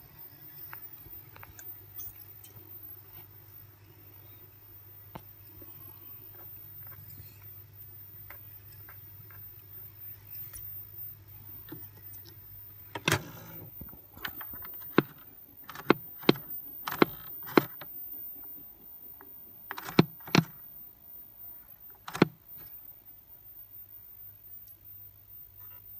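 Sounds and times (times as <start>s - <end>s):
tape recorder running hum: 0.0s - 25.9s
tape recorder lever clicks: 14.2s - 17.9s, 19.7s - 20.6s, 22.0s - 22.7s.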